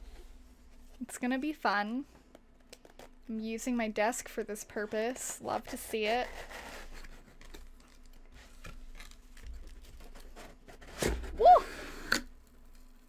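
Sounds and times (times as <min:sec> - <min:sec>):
person exclaiming: 0:11.4 - 0:11.7.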